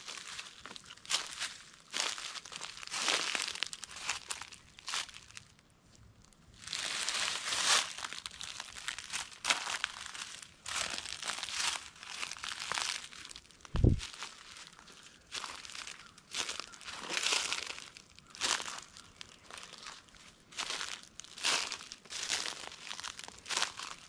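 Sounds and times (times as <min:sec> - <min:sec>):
footsteps crunching dry leaves: 0:00.0 - 0:05.4, 0:06.6 - 0:24.0
low thump: 0:13.8 - 0:14.1.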